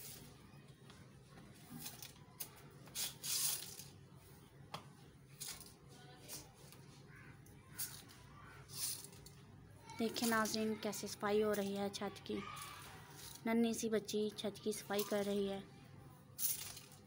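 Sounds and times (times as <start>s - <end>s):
broom sweeping concrete floor: 2.8s - 3.9s, 8.7s - 9.2s, 16.4s - 17.0s.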